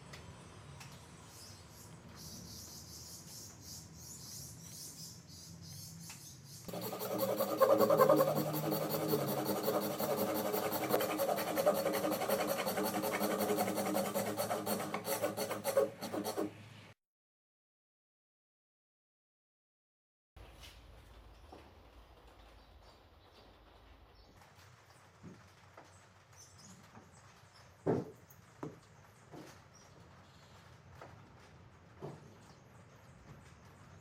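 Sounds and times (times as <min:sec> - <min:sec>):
pencil strokes on wood: 0:06.7 - 0:16.5
hand saw rasping through wood: 0:06.7 - 0:16.6.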